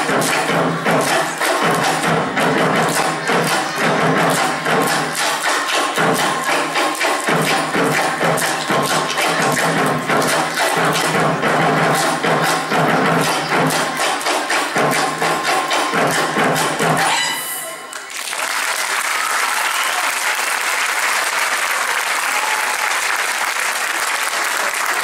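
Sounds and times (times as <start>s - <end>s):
fast hand-clapping and drums: 0.0s - 17.3s, 17.9s - 25.0s
audience applause: 17.8s - 25.0s.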